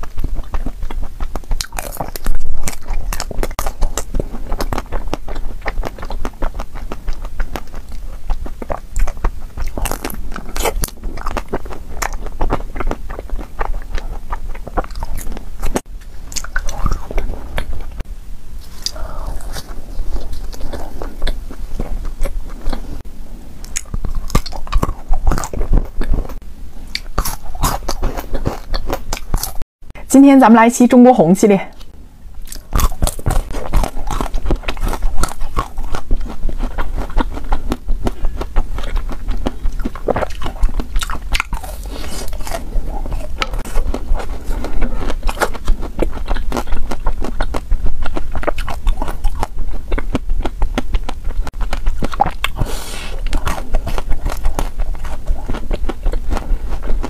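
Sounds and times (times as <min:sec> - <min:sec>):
chewing: 0:00.0 - 0:18.0, 0:18.6 - 0:23.0, 0:23.6 - 0:29.6, 0:31.7 - 0:57.0
crisp bites and crunches: 0:00.0 - 0:18.0, 0:32.4 - 0:57.0.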